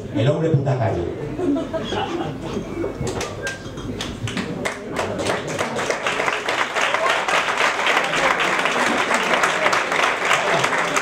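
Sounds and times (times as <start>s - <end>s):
audience applause: 4.0s - 11.0s.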